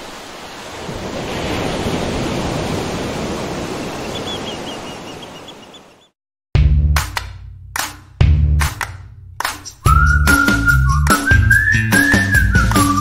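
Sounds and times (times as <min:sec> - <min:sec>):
ocean surf on beach: 0:00.0 - 0:06.1.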